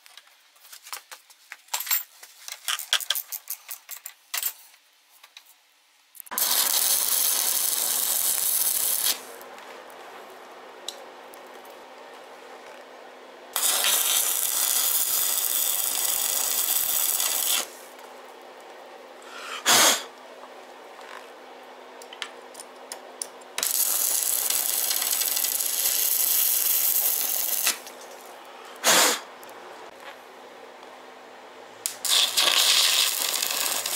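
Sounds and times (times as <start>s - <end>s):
arc welding sizzling hiss: 6.2s - 12.8s, 13.5s - 18.6s, 23.2s - 29.5s, 31.8s - 33.9s
short sharp burst of hiss: 19.5s - 20.1s, 28.8s - 29.3s.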